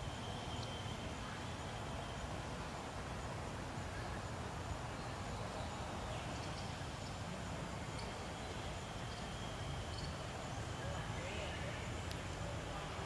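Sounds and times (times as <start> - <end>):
faint clicks: 12.0 - 12.4.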